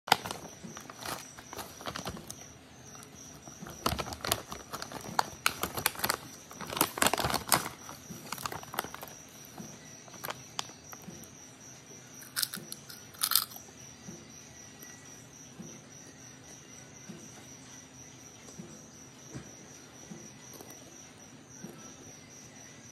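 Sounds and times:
cricket chirping: 0.1 - 22.9
potato chips crunching: 3.4 - 9.1, 12.2 - 13.6.

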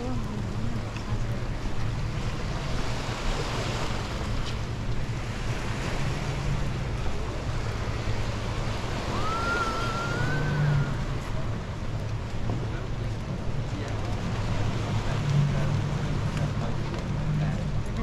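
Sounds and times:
wind on microphone: 0.0 - 16.0
surf rushing: 0.0 - 18.0
thin whistle-like tone: 9.1 - 11.0.

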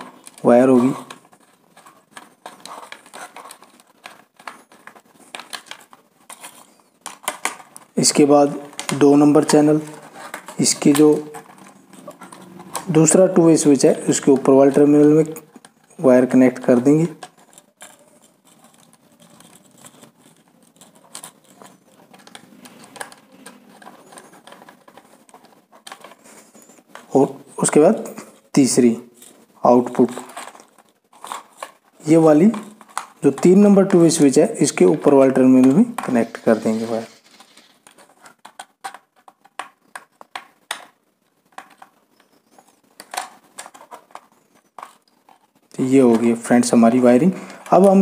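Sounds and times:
faint scratching: 0.0 - 40.2, 41.5 - 48.0
screwdriver clicking and scraping: 0.1 - 7.8, 8.7 - 13.2, 16.6 - 27.1.

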